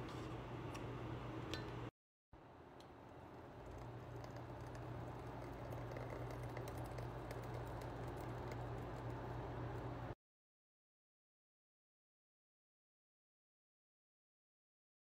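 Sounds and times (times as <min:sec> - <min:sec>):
steady low hum: 0:00.0 - 0:10.2
thick liquid pouring into bowl: 0:03.1 - 0:09.4
bubbles crackling: 0:03.4 - 0:09.4.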